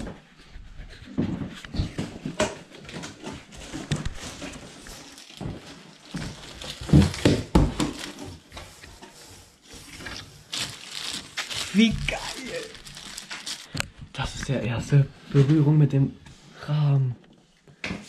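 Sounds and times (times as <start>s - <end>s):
cardboard and plastic rustling: 1.2s - 14.6s.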